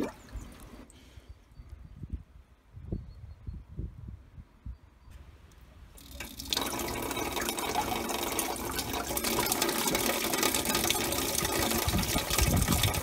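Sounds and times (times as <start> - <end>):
water pouring into a barrel: 6.0 - 13.0.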